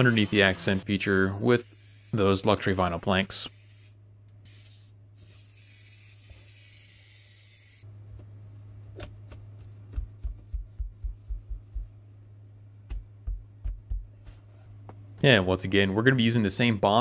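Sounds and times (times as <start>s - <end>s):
aerosol spray can hissing: 0.0s - 2.7s, 3.3s - 7.8s
steady low hum: 0.0s - 17.0s
soft dull thumps: 9.0s - 12.0s, 12.8s - 15.0s.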